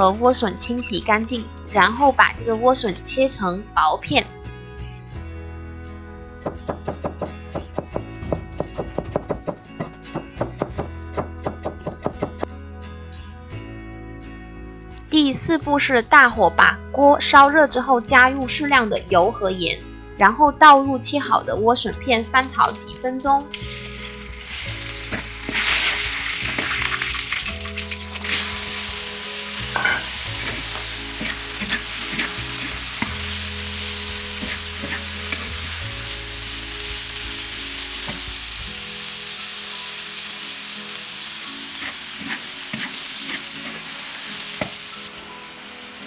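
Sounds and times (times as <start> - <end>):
vegetables sizzling in hot oil: 22.5 - 46.0
spatula scraping a pan: 29.7 - 33.2, 34.4 - 35.6, 41.7 - 43.9.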